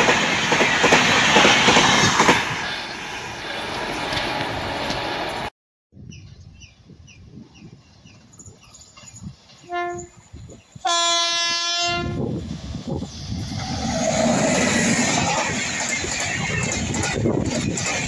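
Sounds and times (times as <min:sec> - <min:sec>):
train passing on rails: 0:00.0 - 0:05.5, 0:07.9 - 0:18.0
locomotive horn blasts: 0:09.6 - 0:10.2, 0:10.8 - 0:12.3.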